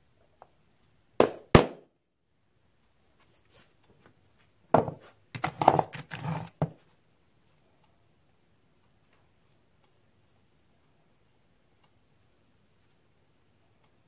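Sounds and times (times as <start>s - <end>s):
tools knocking on wooden bench: 4.7s - 5.9s.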